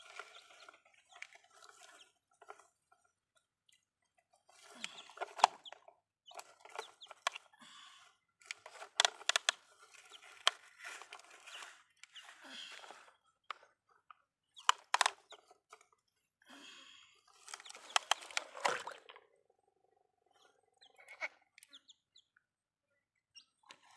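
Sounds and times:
plastic toys clicking and knocking: 4.8s - 7.5s, 8.4s - 13.8s, 14.5s - 15.8s, 17.4s - 18.8s.

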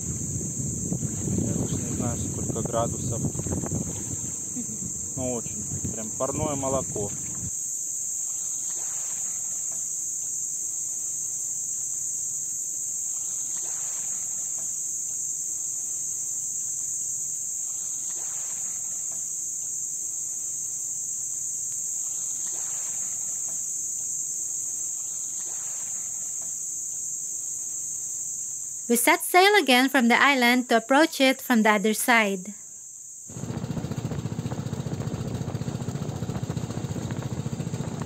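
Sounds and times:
high-pitched insect buzz: 0.0s - 33.4s
small waves washing onto beach: 0.9s - 7.5s, 8.2s - 9.9s, 13.0s - 14.8s, 22.0s - 23.6s.

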